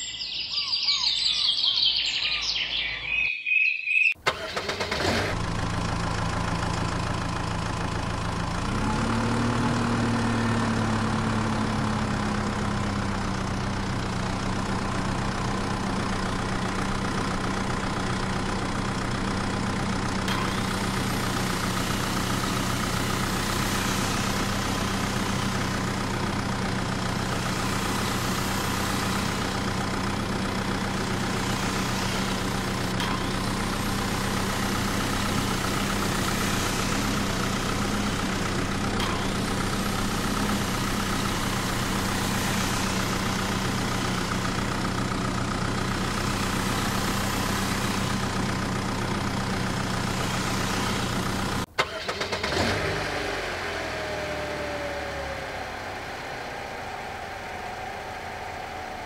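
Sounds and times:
small motor spinning saw blade: 27.1s - 29.8s, 30.4s - 44.6s, 49.7s - 51.4s.

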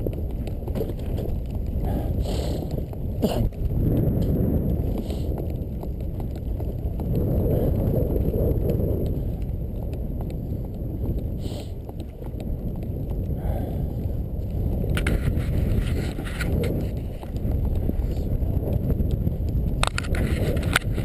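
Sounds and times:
sharp sled clatter: 0.0s - 13.3s, 14.1s - 21.0s
sled clicks and rattles: 0.0s - 21.0s
sled runners hissing on snow: 1.8s - 3.4s, 4.9s - 5.4s, 11.3s - 11.8s.

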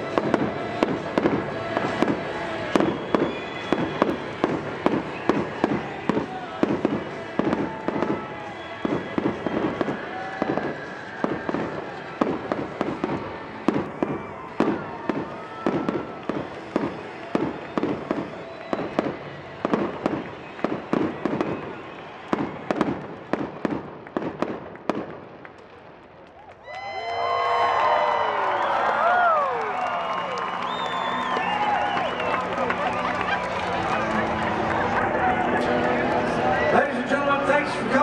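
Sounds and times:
fireworks bursting: 0.0s - 26.0s.

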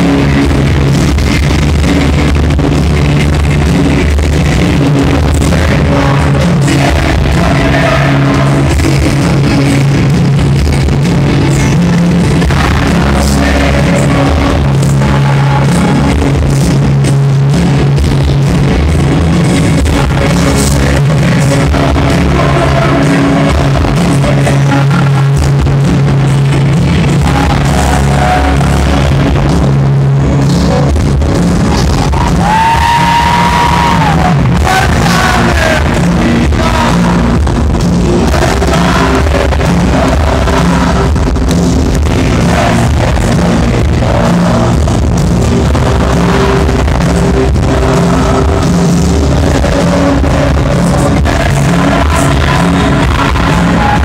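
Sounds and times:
rock band playing live: 0.0s - 54.0s
person singing: 1.4s - 16.9s, 18.3s - 31.1s, 31.7s - 54.0s.

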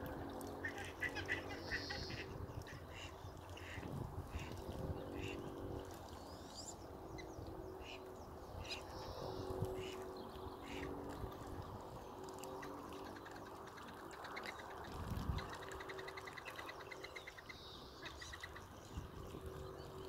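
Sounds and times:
outdoor background hum: 0.0s - 20.0s
ducks calling: 0.6s - 5.5s, 10.6s - 10.9s.

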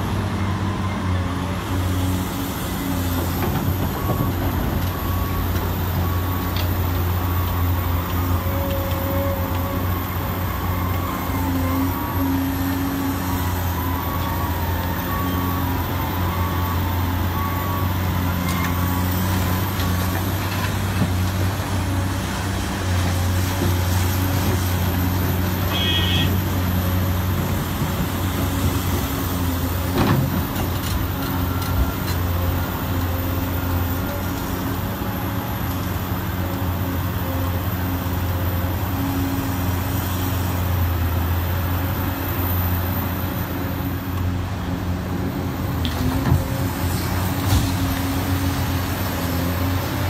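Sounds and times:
excavator diesel engine running: 0.0s - 50.0s.

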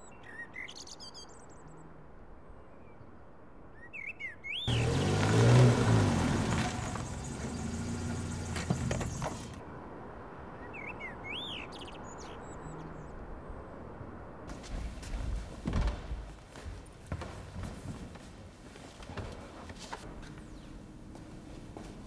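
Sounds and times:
small birds chirping: 3.8s - 9.6s
car driving past: 4.7s - 9.6s.

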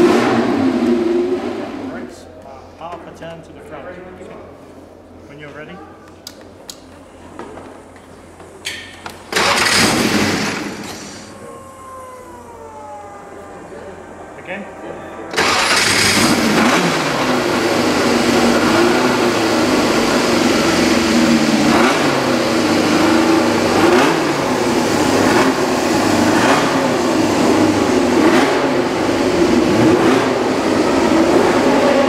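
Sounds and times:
race car engine idling and revving: 0.0s - 1.9s, 15.3s - 32.0s.

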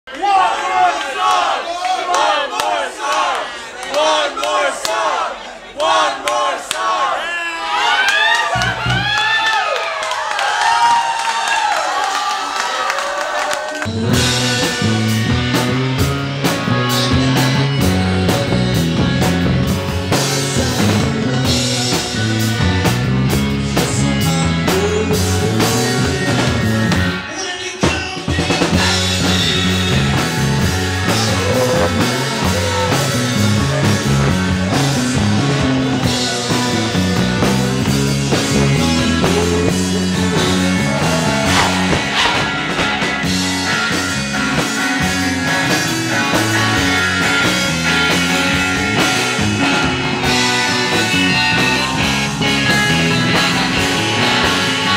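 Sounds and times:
bass guitar: 8.5s - 9.5s, 13.9s - 54.9s
electric guitar: 13.8s - 54.9s
drum kit: 13.9s - 54.9s.

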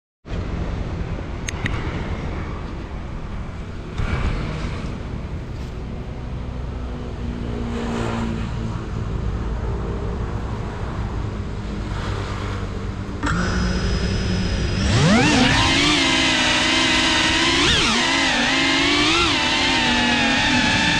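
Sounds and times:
outdoor rumble: 0.3s - 7.6s, 10.4s - 20.9s
drone motors whining: 13.2s - 20.9s.

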